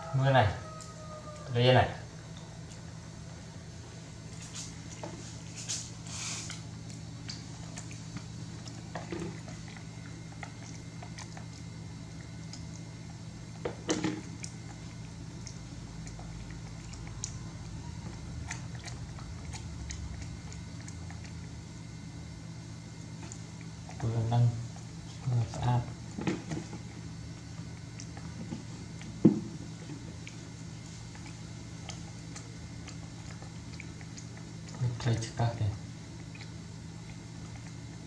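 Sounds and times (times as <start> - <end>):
low hum: 0.0 - 38.0
monkey chewing: 4.1 - 13.6, 14.2 - 38.0
wet mouth clicks: 36.2 - 37.9.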